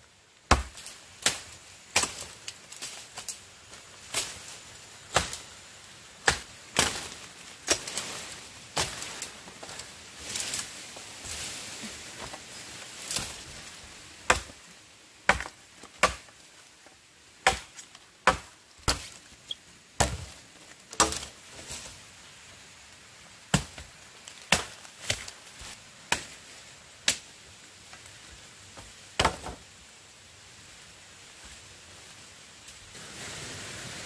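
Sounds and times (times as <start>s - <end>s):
blade chopping wood: 14.3s - 14.5s, 15.3s - 16.3s, 17.4s - 19.2s, 20.0s - 20.3s, 20.9s - 21.3s.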